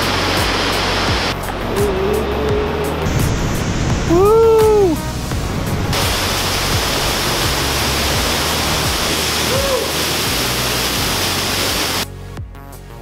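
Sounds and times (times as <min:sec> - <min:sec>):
waterfall splashing into pool: 0:00.0 - 0:02.0, 0:05.9 - 0:12.0.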